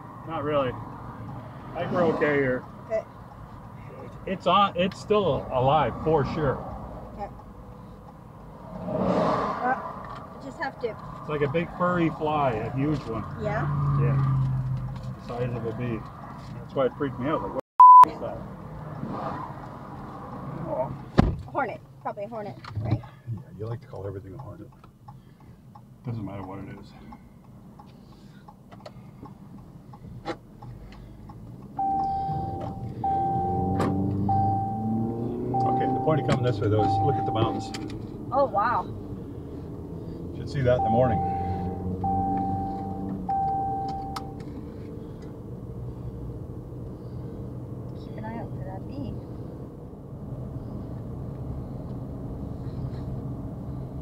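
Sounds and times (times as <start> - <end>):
car engine revving: 0.0 - 3.1, 4.0 - 17.6, 31.0 - 54.0
in-car warning tone: 17.8 - 18.2, 31.8 - 37.8, 40.6 - 44.4
car turn signal clicking: 35.6 - 38.0, 42.0 - 44.5.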